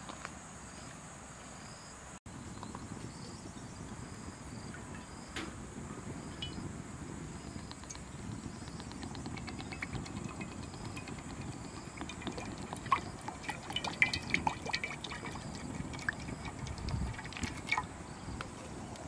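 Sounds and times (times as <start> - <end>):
bubbling and sizzling: 6.2 - 18.0
fire crackling and popping: 7.7 - 17.9
liquid pouring into wok: 9.3 - 17.9.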